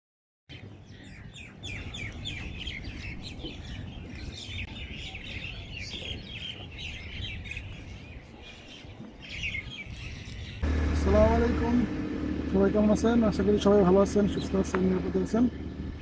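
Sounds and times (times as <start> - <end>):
small birds chirping: 0.5 - 16.0
low background rumble: 10.6 - 16.0.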